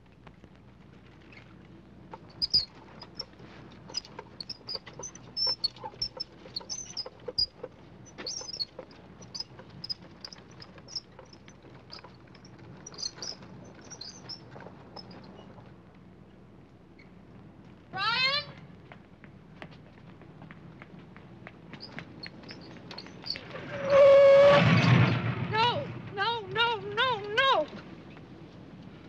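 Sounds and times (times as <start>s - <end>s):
tricycle squeaking and rattling: 1.2s - 15.8s, 21.7s - 25.1s.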